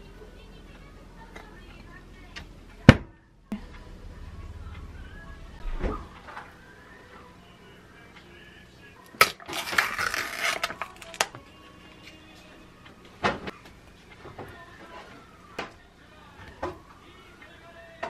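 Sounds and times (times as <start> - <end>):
faint background music: 0.0 - 18.0
foil lid peeling: 9.2 - 11.3.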